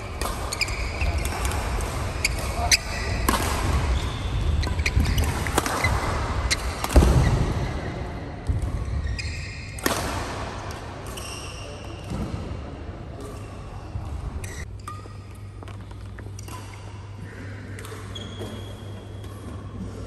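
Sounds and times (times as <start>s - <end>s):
shoes squeaking on court: 0.0s - 7.7s, 8.8s - 9.7s, 14.4s - 16.6s, 18.1s - 19.5s
racket hitting shuttlecock: 0.0s - 9.0s, 9.7s - 11.3s.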